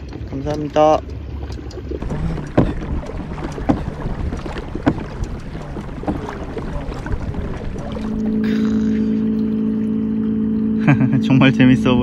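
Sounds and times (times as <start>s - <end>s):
water: 0.0s - 12.0s
kayak stroke knocks: 1.9s - 9.0s
wind on microphone: 2.0s - 8.6s.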